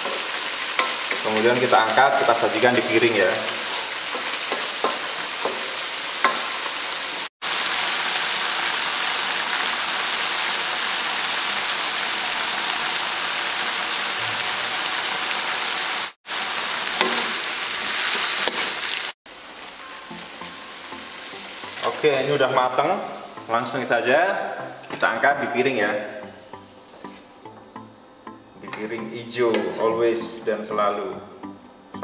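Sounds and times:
vegetables sizzling in a wok: 0.0 - 25.0.

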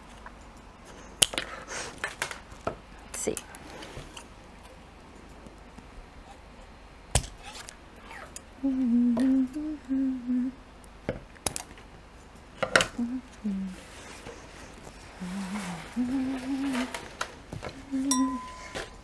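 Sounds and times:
woman humming a tune: 8.6 - 10.6, 12.9 - 13.9, 15.1 - 17.0, 17.7 - 19.0.

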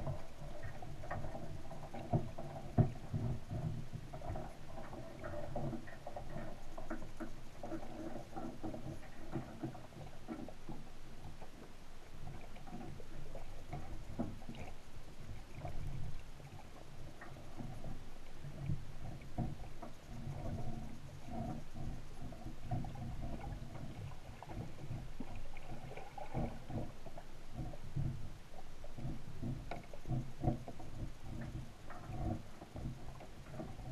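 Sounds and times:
muffled underwater rumble: 0.0 - 33.9
small clicks and knocks: 15.3 - 33.9.

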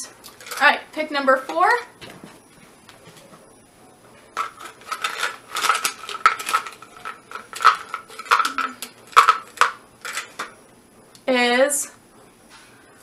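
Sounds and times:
small pieces rattling in plastic container: 4.4 - 10.5.

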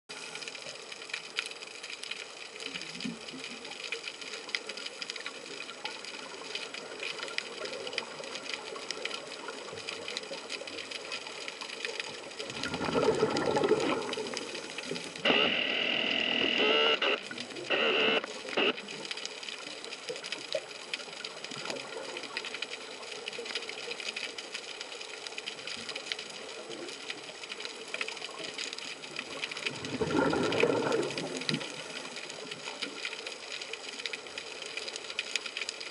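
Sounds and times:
underwater crackling clicks: 0.1 - 35.9
gurgling exhaled bubbles: 12.4 - 14.7, 29.2 - 32.2.

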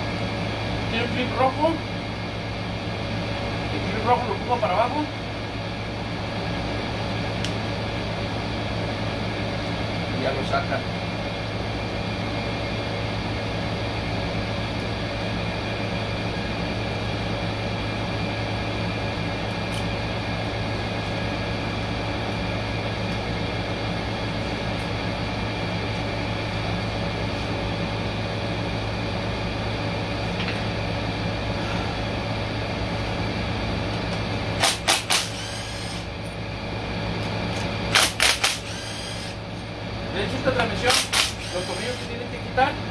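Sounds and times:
machine hum: 0.0 - 42.9
cordless power tool whirring: 34.6 - 36.1, 37.5 - 39.4, 40.8 - 42.2.

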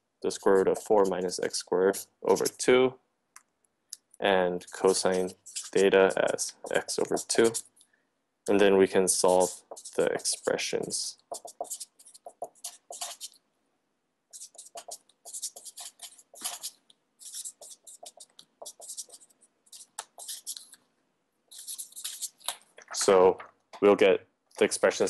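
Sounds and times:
pen scratching on paper: 0.3 - 2.6, 4.6 - 7.7, 9.2 - 13.4, 14.3 - 20.8, 21.5 - 22.5.

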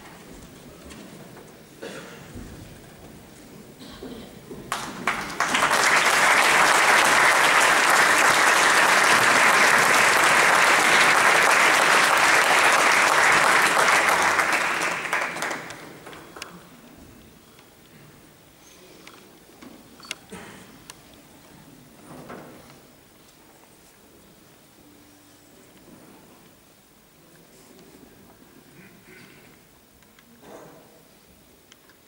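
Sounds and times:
audience applauding: 4.7 - 16.5.

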